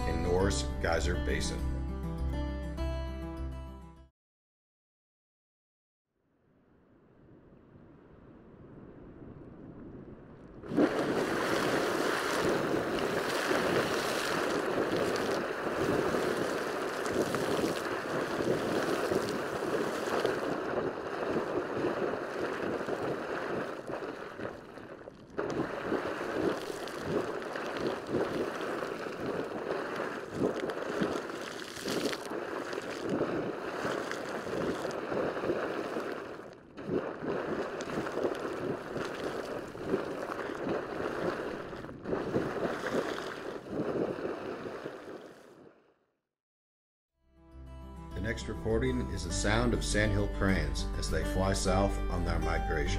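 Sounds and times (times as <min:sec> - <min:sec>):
geyser water gushing and splashing: 0:10.6 - 0:45.3.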